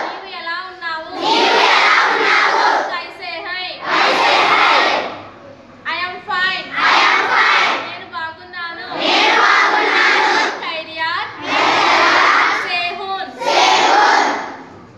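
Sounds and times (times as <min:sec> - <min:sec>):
children shouting in unison: 0:01.2 - 0:02.9, 0:03.8 - 0:05.2, 0:08.9 - 0:10.6, 0:11.4 - 0:12.7, 0:13.3 - 0:14.7.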